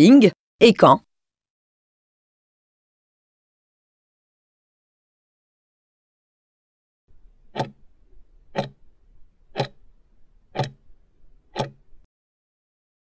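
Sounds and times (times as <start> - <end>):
clock ticking: 7.5 - 7.8, 8.5 - 8.8, 9.5 - 9.9, 10.5 - 10.9, 11.5 - 12.1.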